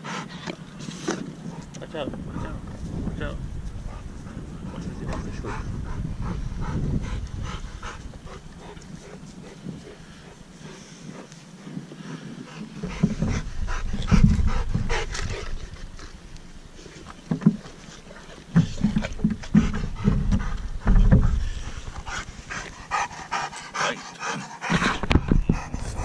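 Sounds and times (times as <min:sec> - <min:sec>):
dog panting: 0:00.0 - 0:00.5, 0:03.8 - 0:16.0, 0:18.6 - 0:26.0
thumps against microphone: 0:12.8 - 0:15.8, 0:18.5 - 0:22.1, 0:24.7 - 0:26.0.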